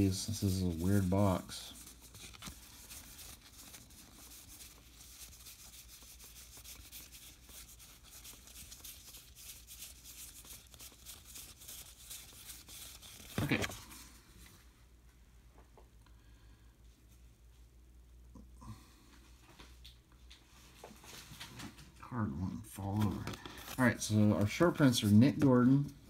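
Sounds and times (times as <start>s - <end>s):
cards being thumbed through: 13.2s - 13.9s.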